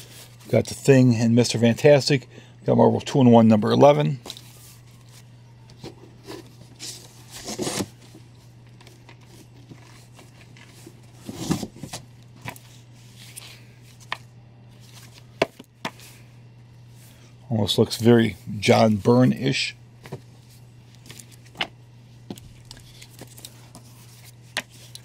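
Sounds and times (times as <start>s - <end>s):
low steady hum: 0.0s - 25.0s
paper rustling and scraping: 4.3s - 16.3s, 22.6s - 25.0s.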